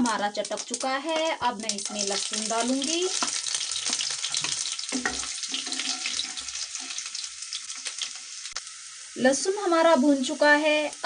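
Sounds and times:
spices sizzling in hot oil: 0:00.0 - 0:11.0
wooden spatula stirring in pan: 0:01.7 - 0:08.3.

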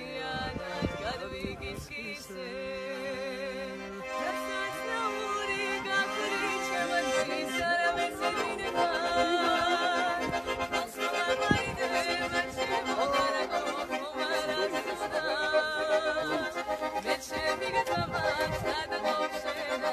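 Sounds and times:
piano accordion playing: 0:00.0 - 0:19.9
woman singing: 0:00.0 - 0:19.9.

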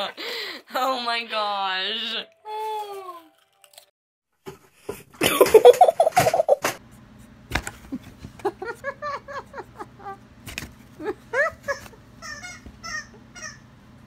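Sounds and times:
person laughing hard: 0:05.2 - 0:06.7, 0:08.4 - 0:10.2, 0:11.0 - 0:12.0.

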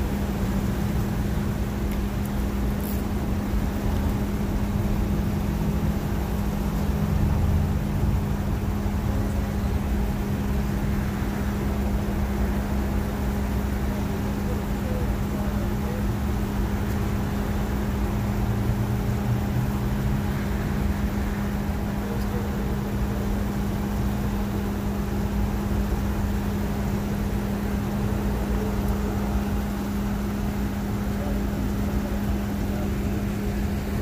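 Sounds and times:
car engine idling: 0:00.0 - 0:34.0.

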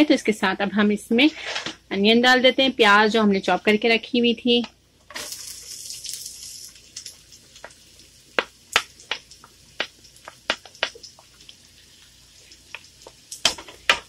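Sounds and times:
onion sizzling in hot oil: 0:04.9 - 0:14.0
spatula tapping and scraping: 0:08.4 - 0:11.2.

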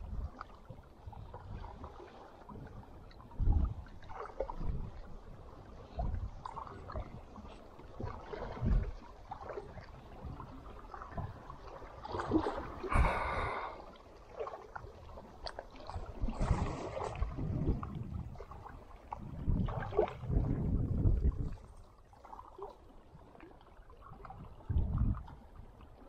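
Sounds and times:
water sloshing and lapping: 0:00.0 - 0:26.0.

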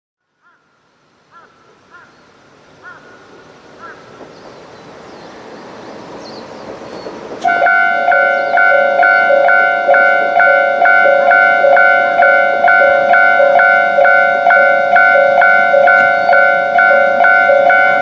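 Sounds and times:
diesel train rumbling: 0:02.5 - 0:18.0
level-crossing alarm bell: 0:07.4 - 0:18.0.

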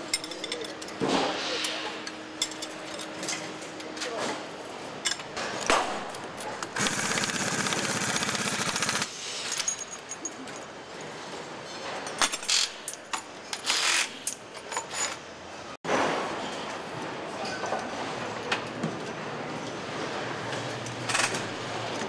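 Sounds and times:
factory hum: 0:00.0 - 0:22.0
power wrench rattling: 0:06.7 - 0:09.1.

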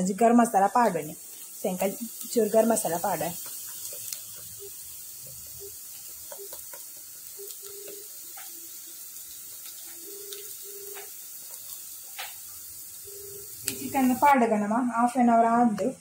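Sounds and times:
onions sizzling in hot oil: 0:00.0 - 0:16.0.

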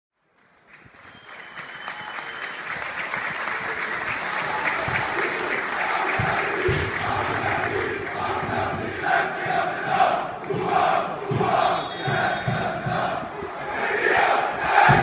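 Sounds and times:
large crowd clapping: 0:00.2 - 0:11.0
crowd chanting: 0:03.2 - 0:15.0.

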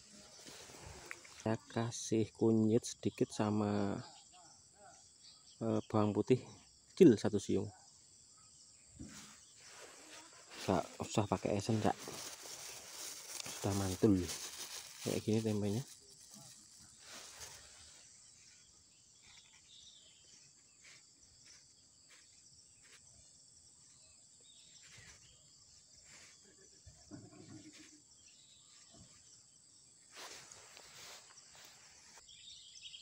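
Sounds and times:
insects droning: 0:00.0 - 0:33.0
plastic bags rustling: 0:10.5 - 0:17.7.

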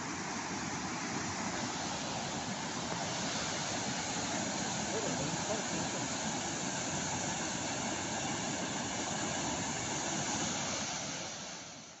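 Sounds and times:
floodwater rushing: 0:00.0 - 0:11.6.

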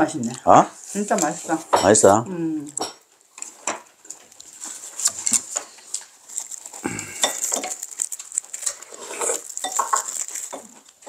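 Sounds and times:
chewing: 0:02.7 - 0:11.0
utensils clicking on metal bowl: 0:07.2 - 0:10.9.

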